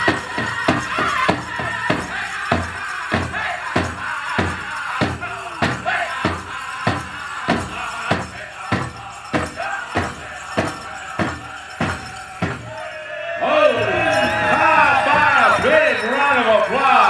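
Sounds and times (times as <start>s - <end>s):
big drum steady beat: 0.0s - 12.8s
men singing high: 0.0s - 17.0s.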